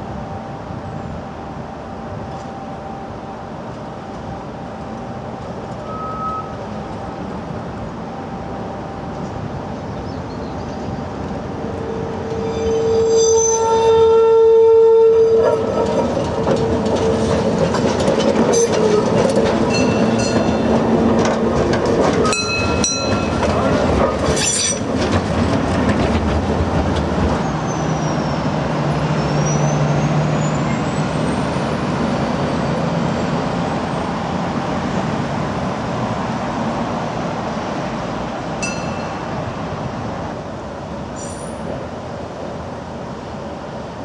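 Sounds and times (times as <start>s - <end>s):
tram running noise: 0.0s - 44.0s
wheels clattering over track: 15.6s - 27.4s.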